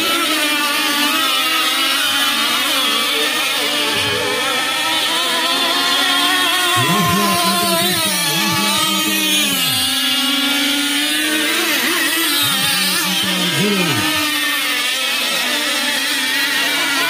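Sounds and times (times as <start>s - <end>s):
speedboat motors whining: 0.0s - 17.0s.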